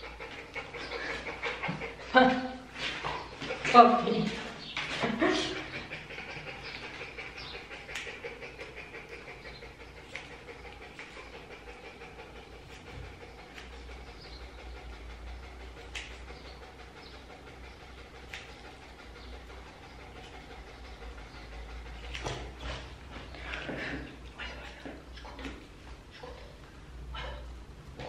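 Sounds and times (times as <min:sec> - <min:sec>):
scissors snipping fur: 0:18.3 - 0:18.7.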